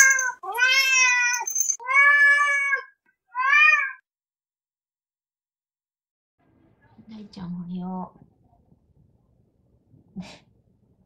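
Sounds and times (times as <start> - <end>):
cat meowing: 0.0 - 4.0.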